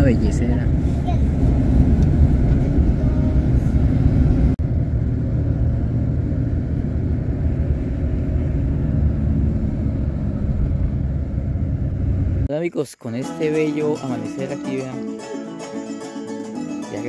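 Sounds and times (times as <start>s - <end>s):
engine rumbling: 0.0s - 12.5s.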